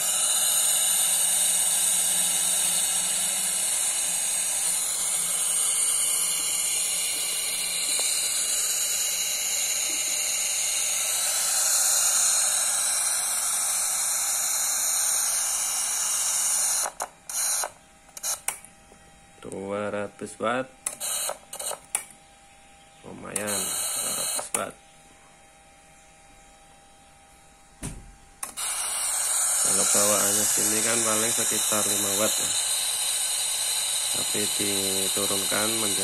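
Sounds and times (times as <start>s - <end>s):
radio static hiss: 0.0s - 18.7s, 19.4s - 22.2s, 23.0s - 24.9s, 28.4s - 36.0s.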